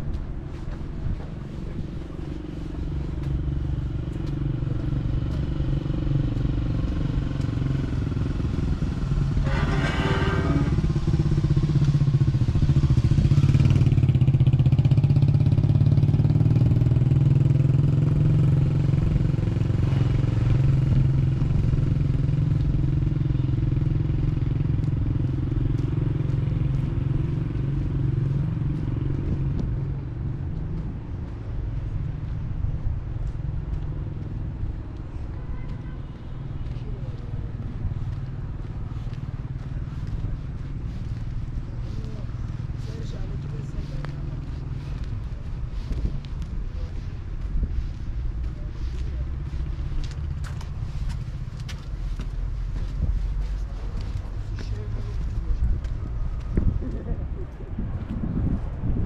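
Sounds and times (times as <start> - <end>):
engine humming: 0.0 - 34.8.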